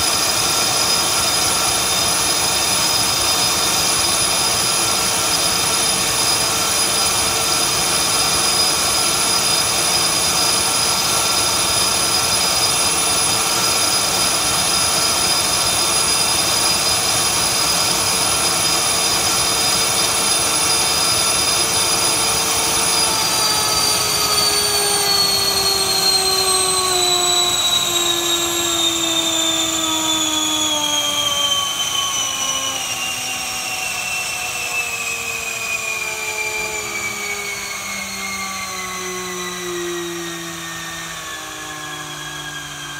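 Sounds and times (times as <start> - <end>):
electric ducted fan whining: 0.0 - 42.9.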